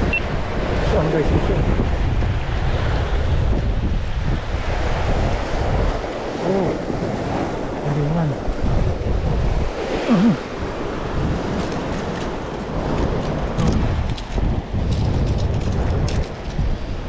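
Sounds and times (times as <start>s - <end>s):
surf breaking on rocky shore: 0.0s - 17.0s
wind buffeting microphone: 0.0s - 17.0s
short voice sounds: 10.1s - 10.4s.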